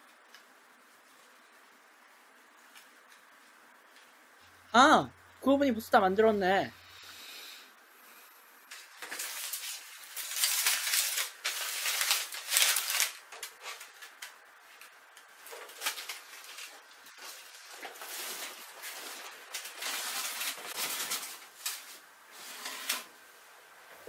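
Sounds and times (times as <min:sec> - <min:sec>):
paper crumpling by hand: 0:08.7 - 0:22.0.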